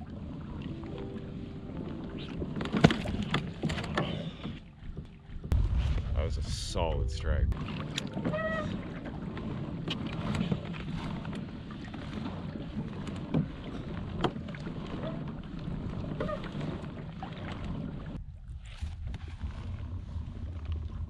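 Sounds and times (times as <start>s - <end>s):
water against kayak hull: 0.0s - 21.0s
wind on microphone: 5.3s - 14.2s.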